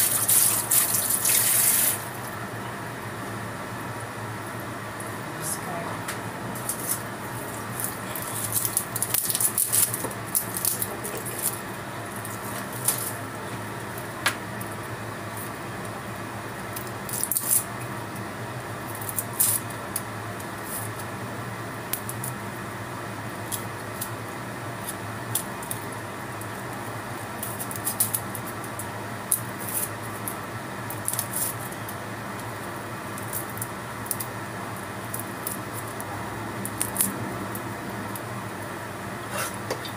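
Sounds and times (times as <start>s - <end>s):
steady background hum: 0.0s - 39.9s
garlic skin crackling: 6.6s - 14.7s, 16.7s - 17.7s, 26.4s - 32.5s, 33.1s - 38.3s.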